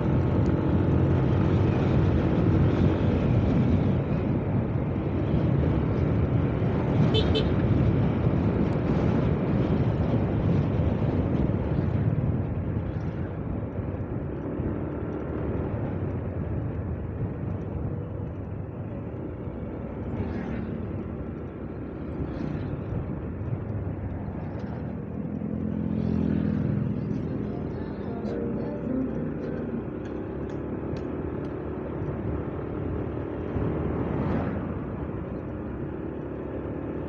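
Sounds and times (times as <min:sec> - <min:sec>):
wind rush: 0:00.0 - 0:35.9
road noise: 0:00.0 - 0:37.0
motorcycle engine running: 0:09.6 - 0:33.8.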